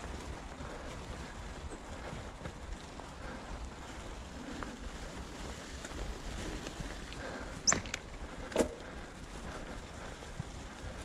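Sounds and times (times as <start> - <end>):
bike tyres rumbling on dirt: 0.0 - 11.0.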